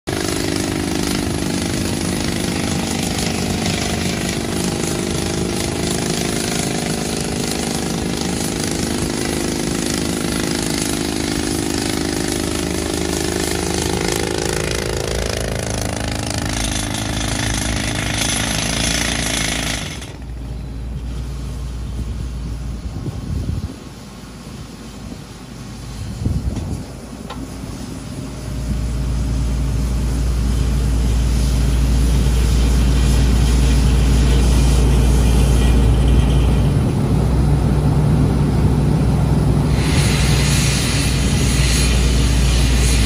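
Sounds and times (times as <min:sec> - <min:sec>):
rock drill hammering: 0:00.1 - 0:20.4
hissing air: 0:00.1 - 0:36.8, 0:39.4 - 0:43.0.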